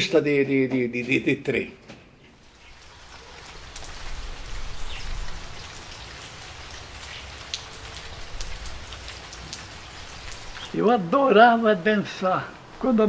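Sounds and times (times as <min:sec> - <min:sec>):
raindrop ticks: 0:02.4 - 0:11.2
steady rain hiss: 0:02.4 - 0:13.0.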